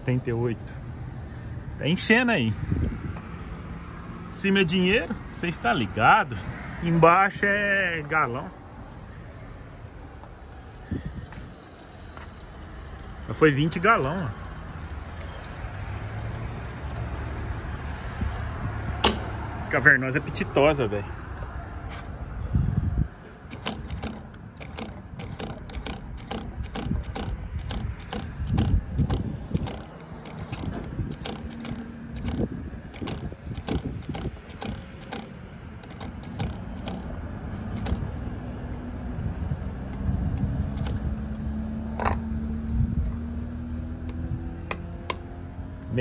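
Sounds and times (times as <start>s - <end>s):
sharp mechanical clicks: 23.5s - 38.2s, 40.7s - 41.0s.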